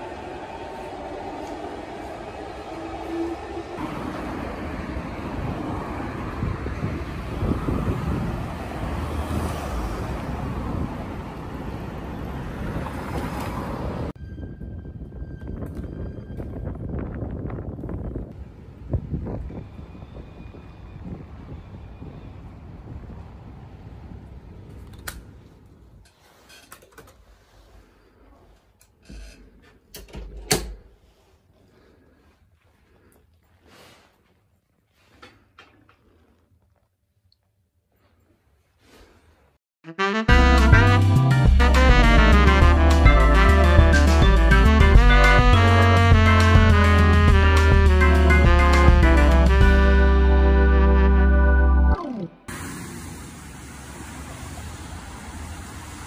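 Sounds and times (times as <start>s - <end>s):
low rumble of cars: 0.0s - 14.2s, 17.3s - 26.0s, 52.4s - 56.0s
vehicles passing: 0.0s - 14.2s, 40.3s - 56.0s
wind on microphone: 5.0s - 11.2s, 14.2s - 24.7s.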